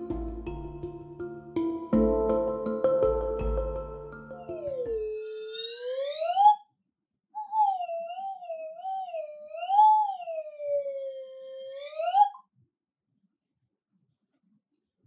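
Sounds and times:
tone gliding in pitch: 0:00.0 - 0:06.5.

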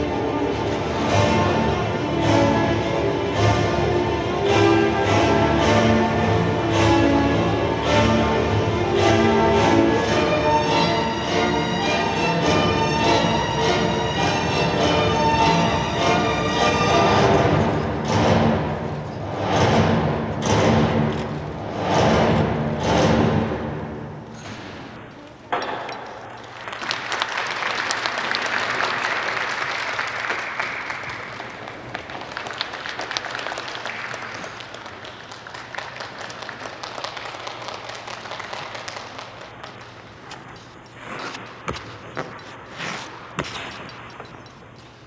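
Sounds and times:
audience clapping: 0:26.4 - 0:40.2.

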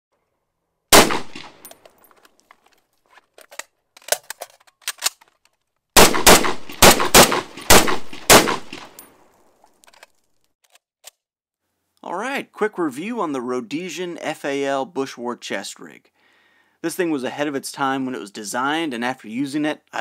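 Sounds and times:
rifle shots: 0:00.9 - 0:01.7, 0:06.0 - 0:09.0
metallic clicking of rifle handling: 0:01.3 - 0:05.7, 0:09.7 - 0:11.2.

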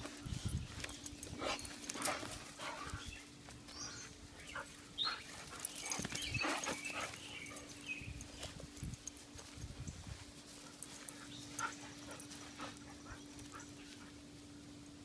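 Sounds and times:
dogs scuffling on grass: 0:00.0 - 0:15.0
dogs whining: 0:03.9 - 0:08.2.

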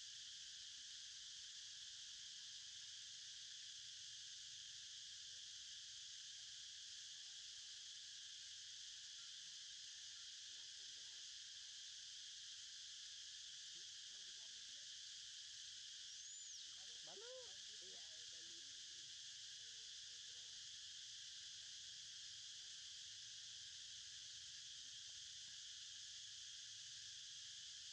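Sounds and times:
insect chorus buzzing: 0:07.8 - 0:27.9.

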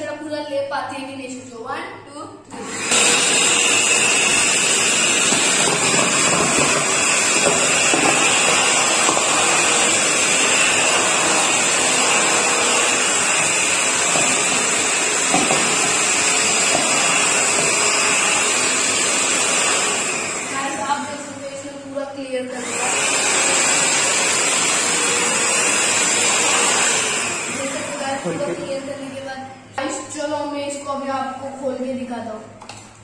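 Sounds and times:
handheld vacuum cleaner running: 0:02.5 - 0:21.4, 0:22.5 - 0:28.9.

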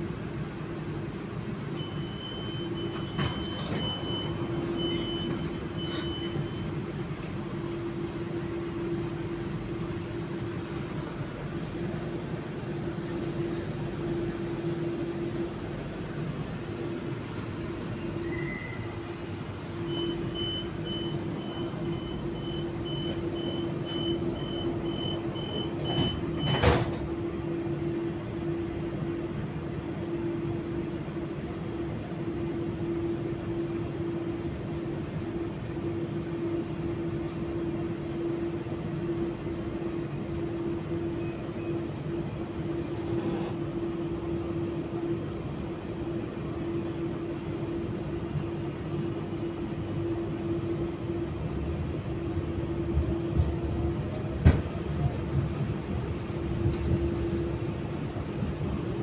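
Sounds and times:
electric train humming: 0:06.4 - 0:25.9, 0:43.6 - 0:59.0.

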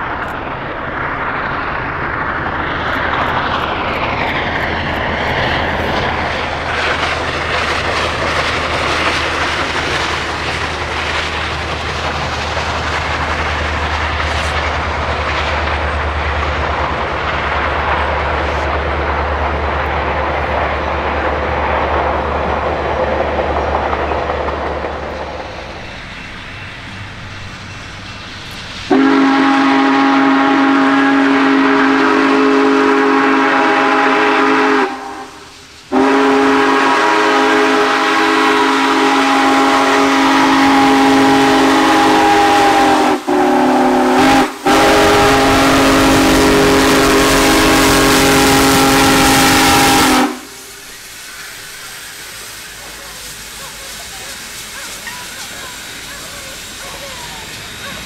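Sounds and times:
passing train rumble: 0:00.0 - 0:58.0
steam whistle blasts: 0:28.9 - 0:50.8.

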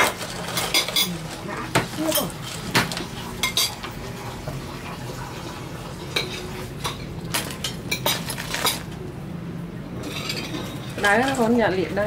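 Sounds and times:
dishes and utensils clinking: 0:00.0 - 0:04.0, 0:06.1 - 0:09.0, 0:10.0 - 0:11.6.

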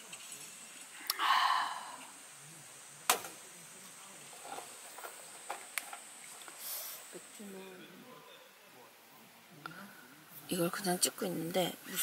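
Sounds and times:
short breathy rush: 0:01.0 - 0:02.2, 0:06.6 - 0:07.1.

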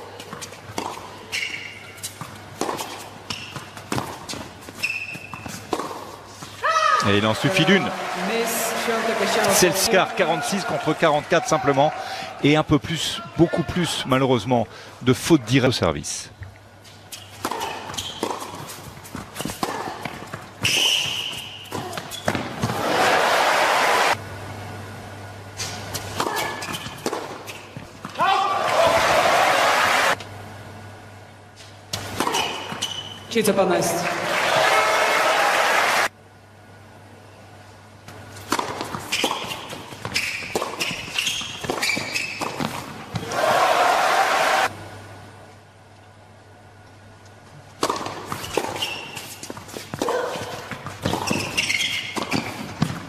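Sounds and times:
racket hitting tennis ball: 0:00.2 - 0:06.5, 0:17.1 - 0:22.9, 0:25.8 - 0:29.2, 0:31.9 - 0:32.9, 0:38.1 - 0:43.4, 0:47.8 - 0:53.0
shoe squeal: 0:01.3 - 0:02.1, 0:03.3 - 0:03.7, 0:04.8 - 0:05.6, 0:17.1 - 0:18.4, 0:20.6 - 0:22.4, 0:32.3 - 0:33.3, 0:39.1 - 0:42.7, 0:48.3 - 0:49.5, 0:50.1 - 0:52.7
crowd applauding: 0:07.2 - 0:12.6, 0:22.8 - 0:24.2, 0:34.1 - 0:36.1.

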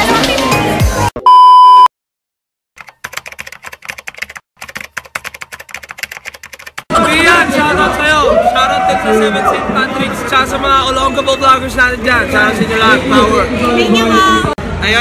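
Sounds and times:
electronic beep: 0:01.2 - 0:01.9
rapid keyboard clicks: 0:02.8 - 0:06.9.

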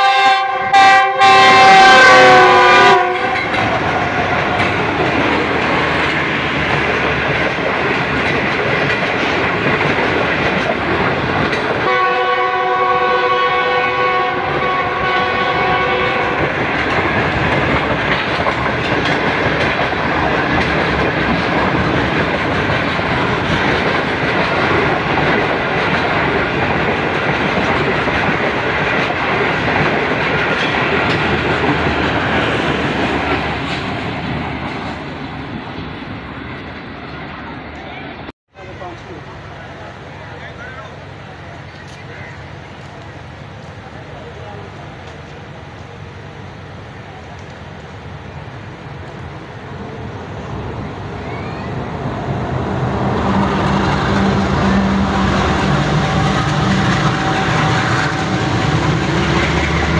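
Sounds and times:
locomotive horn blasts: 0:00.0 - 0:03.6, 0:11.8 - 0:16.6, 0:53.2 - 0:59.9
passenger coaches rolling past: 0:00.0 - 0:59.9.

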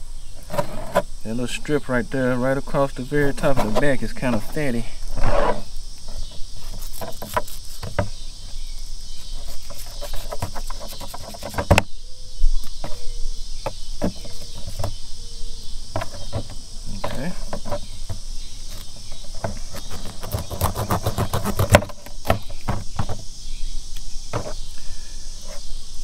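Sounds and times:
crickets chirring: 0:00.0 - 0:26.0
knife scraping fish: 0:06.6 - 0:07.8, 0:09.4 - 0:11.5.

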